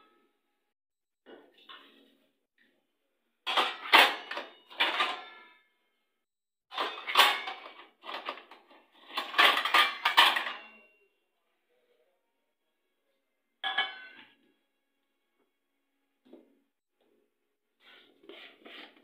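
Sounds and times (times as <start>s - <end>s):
steel plates clanging: 9.1s - 10.8s.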